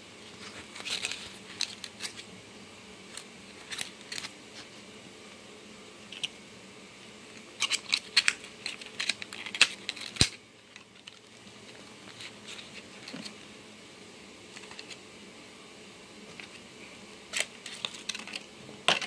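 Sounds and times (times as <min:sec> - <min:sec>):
plastic rustling: 0:00.3 - 0:02.3, 0:03.1 - 0:04.8, 0:07.4 - 0:13.5, 0:17.3 - 0:19.0
plastic snapping: 0:07.6 - 0:11.2
plastic packaging clicking: 0:07.6 - 0:11.3.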